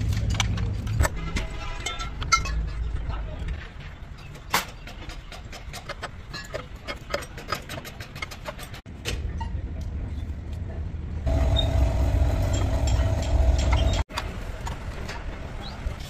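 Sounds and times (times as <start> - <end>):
diesel engine rumbling: 11.1 - 14.1
steady hum: 11.3 - 14.0.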